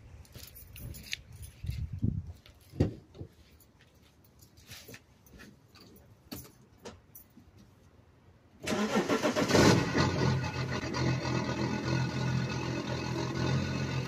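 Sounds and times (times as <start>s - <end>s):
diesel engine starting and running lumpy: 8.6s - 14.0s.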